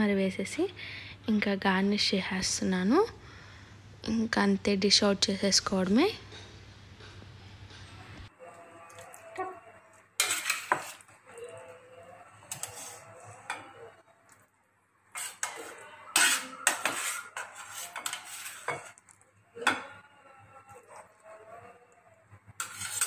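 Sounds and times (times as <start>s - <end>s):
metal spoon scraping steel pot: 10.2s - 11.1s, 12.5s - 13.9s, 15.1s - 19.0s, 22.6s - 23.0s.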